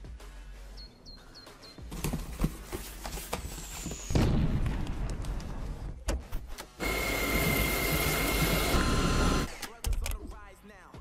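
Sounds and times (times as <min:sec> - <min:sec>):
vacuum cleaner running: 0:06.8 - 0:09.5.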